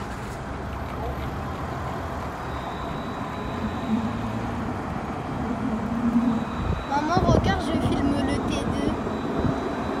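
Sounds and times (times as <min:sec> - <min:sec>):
tram rumbling on rails: 0:00.0 - 0:10.0
low motor hum: 0:00.6 - 0:10.0
faint high whine: 0:02.1 - 0:10.0.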